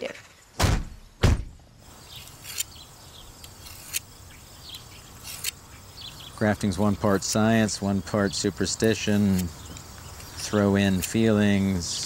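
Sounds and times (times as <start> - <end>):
loud thuds: 0.6 - 1.7
faint bird or insect chirps: 1.8 - 12.0.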